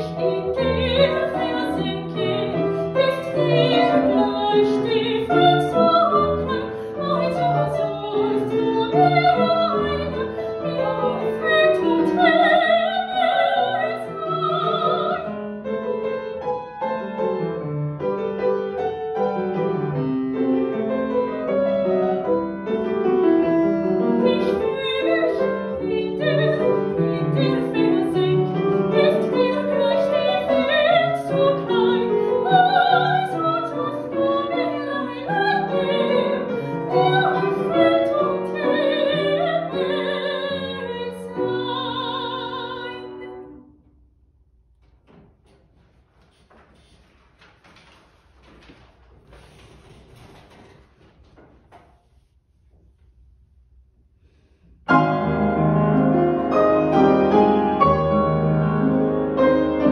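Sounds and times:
woman singing operatically: 0:00.0 - 0:15.4, 0:24.2 - 0:43.4
grand piano accompaniment: 0:00.0 - 0:51.9, 0:54.8 - 0:59.9.

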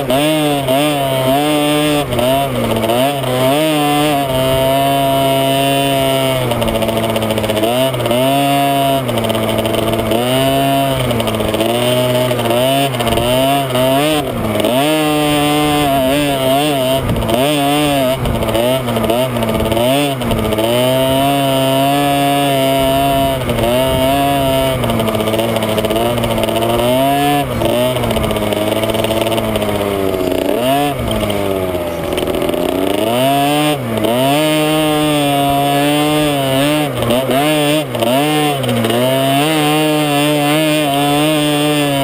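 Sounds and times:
two-stroke dirt bike engine revving: 0:00.0 - 0:42.0.

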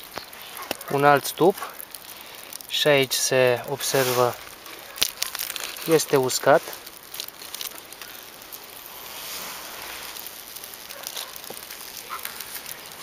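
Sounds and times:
rustling and handling noise: 0:03.6 - 0:13.0.

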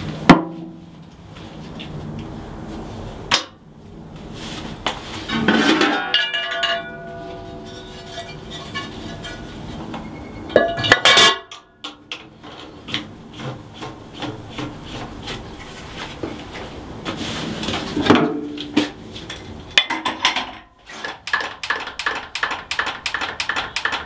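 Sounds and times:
metal cover clanking: 0:05.3 - 0:09.5, 0:10.5 - 0:12.0, 0:19.8 - 0:20.7.

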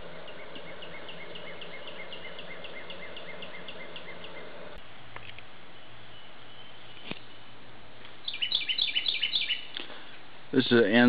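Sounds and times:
rhythmic chirping call: 0:00.0 - 0:04.8, 0:08.2 - 0:09.7
steady low hum: 0:00.0 - 0:08.4.

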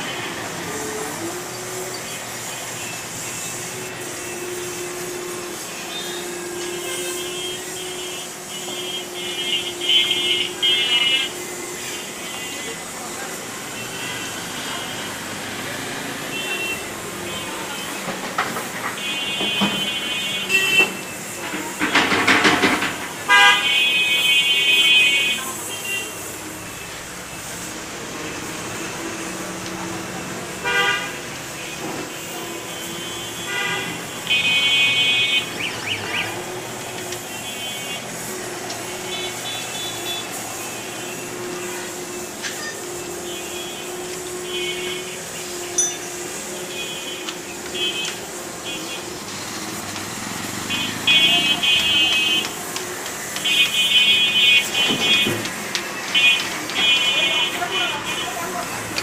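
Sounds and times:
street traffic: 0:00.0 - 0:59.0
vehicle horn blast: 0:04.2 - 0:12.8, 0:19.0 - 0:21.8, 0:23.3 - 0:26.3, 0:30.6 - 0:32.0, 0:32.6 - 0:35.6, 0:50.5 - 0:52.4
diesel engine under load: 0:26.2 - 0:59.0.

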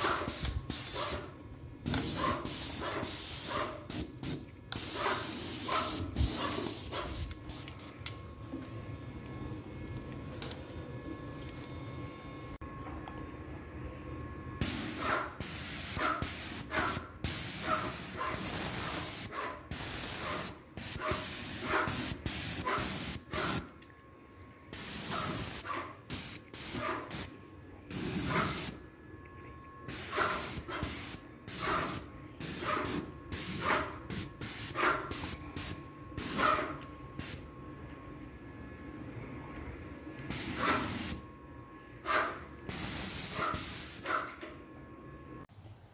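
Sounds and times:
paint spray gun hissing: 0:00.0 - 0:01.0, 0:01.9 - 0:07.6, 0:14.6 - 0:23.6, 0:24.8 - 0:27.3, 0:27.9 - 0:28.7, 0:29.9 - 0:36.4, 0:40.3 - 0:41.2, 0:42.7 - 0:44.0.

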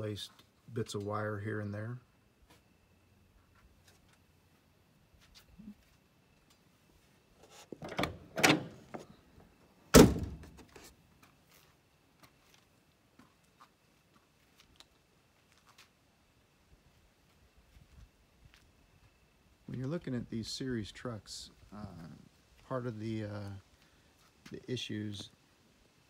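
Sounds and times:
bonnet slamming shut: 0:10.0 - 0:10.6.

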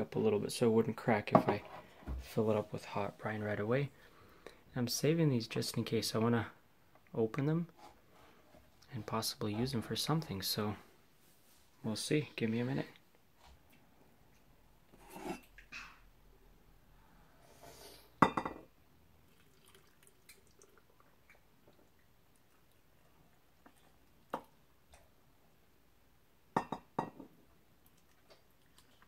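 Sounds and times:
syrup trickling into jars: 0:19.2 - 0:24.6.

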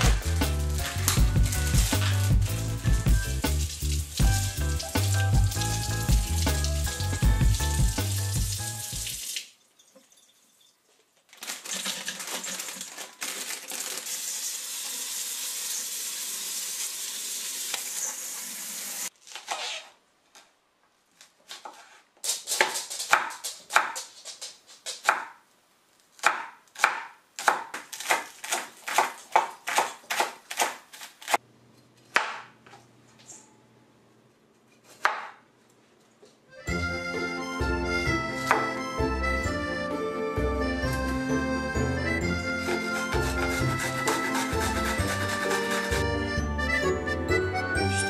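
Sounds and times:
faucet water running: 0:00.6 - 0:10.8, 0:13.6 - 0:19.1
knife chopping on wooden board: 0:24.9 - 0:25.4, 0:26.2 - 0:31.4, 0:34.8 - 0:35.4, 0:38.5 - 0:38.8.

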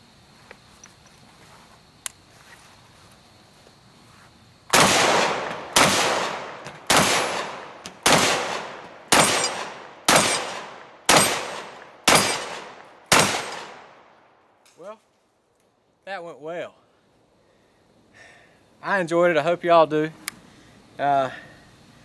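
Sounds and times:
shotgun shots with echo: 0:04.7 - 0:13.9.

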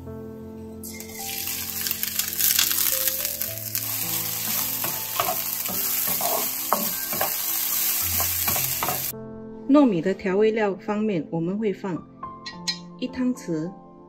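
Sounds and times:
rice sizzling in hot oil: 0:00.8 - 0:09.1
spatula scraping wok: 0:01.0 - 0:09.1.

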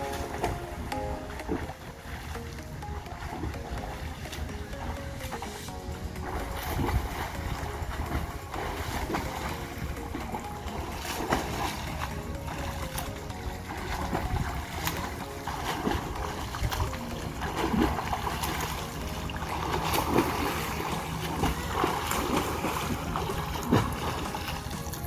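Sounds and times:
swimmer splashing in pool: 0:05.5 - 0:25.0.

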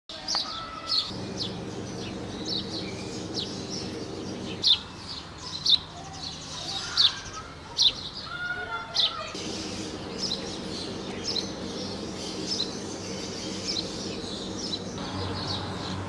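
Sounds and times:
small bird chirping: 0:00.3 - 0:08.2, 0:09.0 - 0:16.0
low steady hum: 0:01.1 - 0:04.7, 0:09.4 - 0:16.0.

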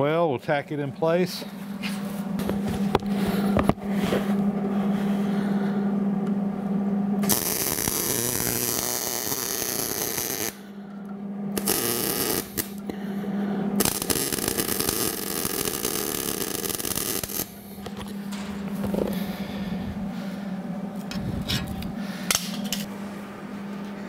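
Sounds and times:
steady low hum: 0:00.0 - 0:24.0
welding arc crackling: 0:07.2 - 0:10.6, 0:11.6 - 0:12.9, 0:13.8 - 0:19.5.

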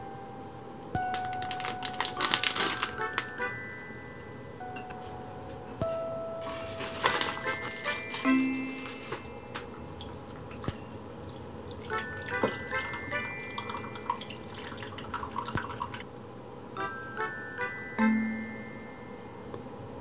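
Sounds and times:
coffee dripping into a mug: 0:09.5 - 0:16.0.

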